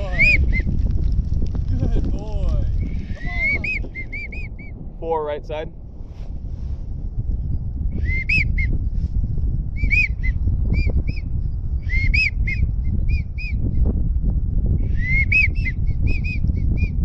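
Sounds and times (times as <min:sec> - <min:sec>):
wind rumble on microphone: 0:00.0 - 0:17.0
duck whistles: 0:03.4 - 0:04.7, 0:08.0 - 0:08.7, 0:09.8 - 0:11.2, 0:11.9 - 0:13.6, 0:14.9 - 0:16.9.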